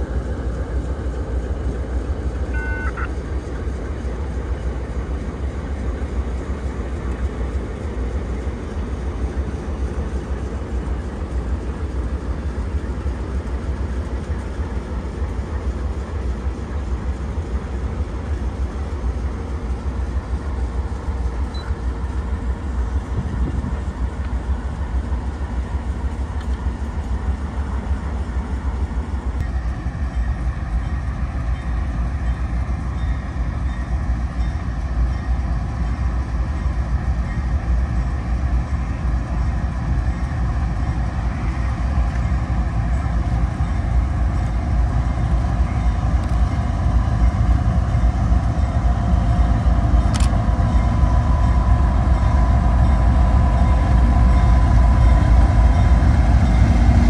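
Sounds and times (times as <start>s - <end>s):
diesel locomotive rumble: 0.0s - 57.0s
steady high whine: 0.0s - 57.0s.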